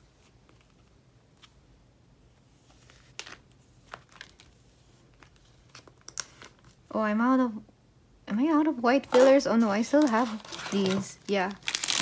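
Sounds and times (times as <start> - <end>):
plastic sleeves crinkling: 2.7 - 6.8, 9.0 - 12.0.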